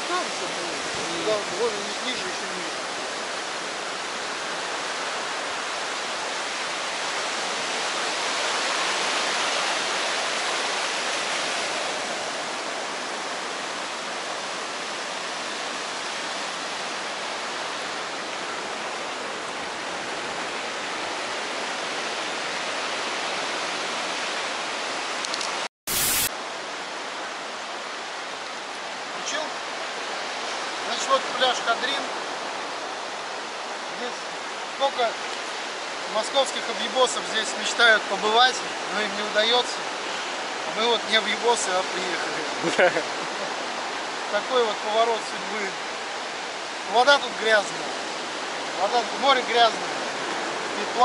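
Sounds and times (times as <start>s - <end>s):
surf washing up beach: 0.0s - 51.0s
static hiss: 25.3s - 26.4s.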